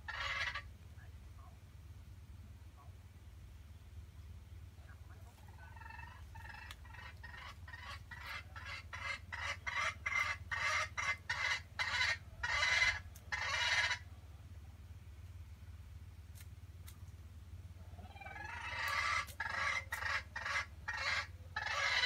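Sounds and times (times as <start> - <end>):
junglefowl cackling: 0.0 - 0.7, 5.2 - 14.1, 17.8 - 22.0.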